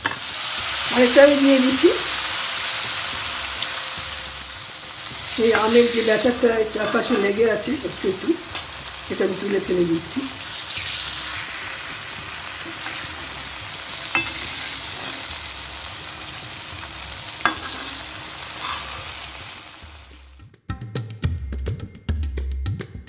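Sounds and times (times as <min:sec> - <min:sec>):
batter sizzling in hot oil: 0:00.0 - 0:20.3.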